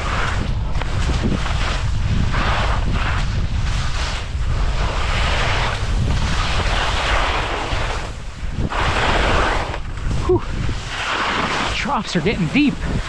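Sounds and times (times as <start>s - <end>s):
skis scraping over snow: 0.0s - 13.0s
wind buffeting microphone: 0.0s - 13.0s.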